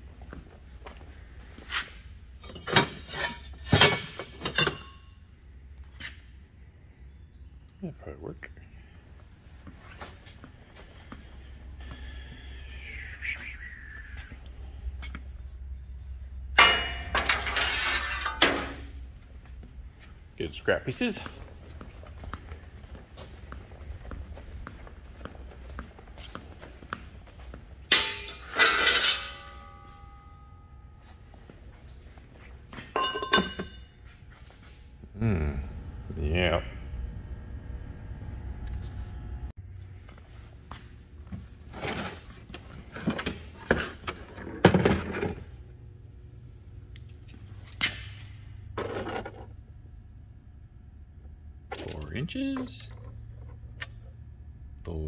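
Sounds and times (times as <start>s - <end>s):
metal scrap clanking: 2.4s - 5.1s, 16.5s - 18.9s, 27.9s - 30.7s
low hum: 8.6s - 41.6s.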